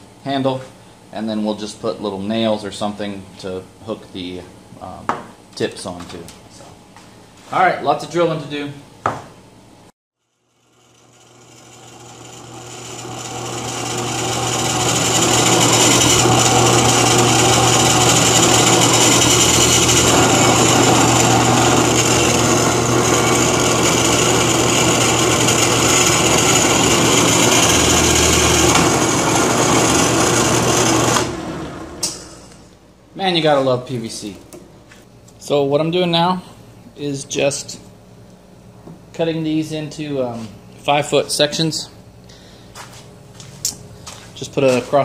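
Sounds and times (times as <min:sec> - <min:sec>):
drill press motor hum: 0:10.3 - 0:32.8
drill bit cutting plastic pipe: 0:10.7 - 0:32.2.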